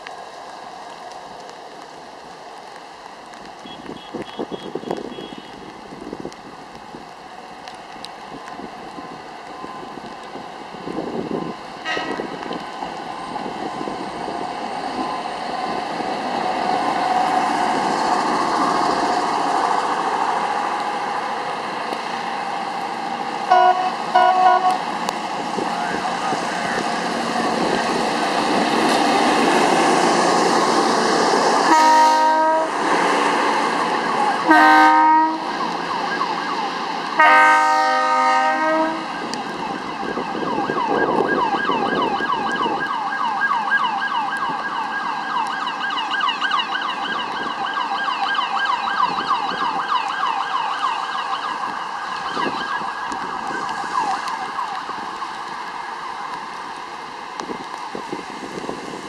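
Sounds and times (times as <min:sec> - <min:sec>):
horn blasts: 0:11.8 - 0:12.2, 0:23.5 - 0:24.8, 0:31.7 - 0:32.8, 0:34.4 - 0:35.5, 0:37.2 - 0:39.1
police siren rising and falling: 0:33.9 - 0:56.5.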